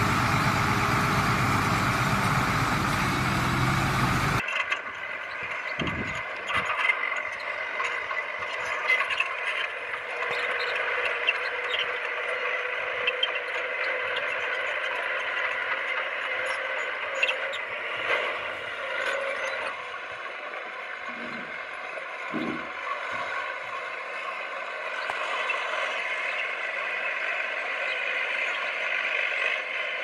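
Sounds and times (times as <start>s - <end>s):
machinery clanks and rattles: 0.0s - 4.4s, 21.0s - 23.9s
earth-moving machinery whine: 0.0s - 30.0s.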